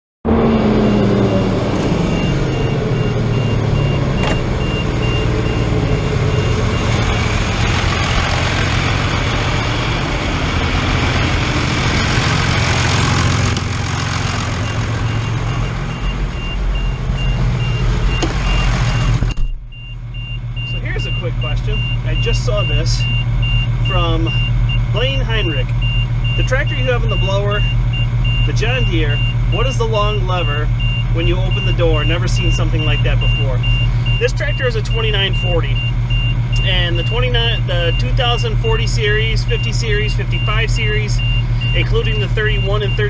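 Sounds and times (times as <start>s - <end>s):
tractor diesel engine running: 0.3s - 43.0s
rushing machine noise: 0.5s - 19.4s.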